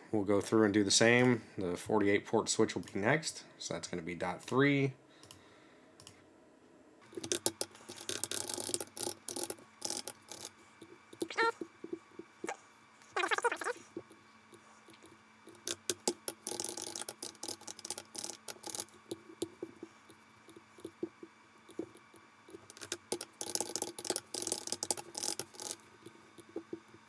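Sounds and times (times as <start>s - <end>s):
keyboard typing: 7.1s - 10.6s, 14.9s - 27.0s.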